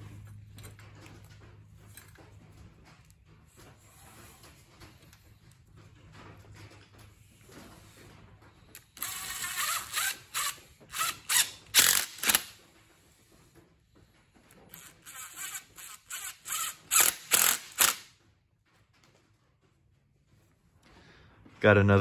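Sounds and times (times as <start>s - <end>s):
cordless power driver whirring: 9.0s - 12.6s, 14.7s - 18.0s.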